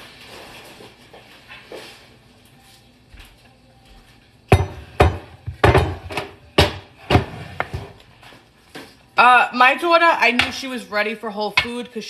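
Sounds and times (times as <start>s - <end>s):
kitchenware knocking on wooden counter: 4.5s - 7.9s.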